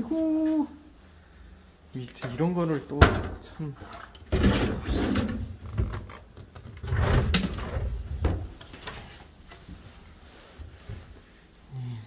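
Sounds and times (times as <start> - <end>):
cabinet doors and drawers clattering: 3.0 - 9.2.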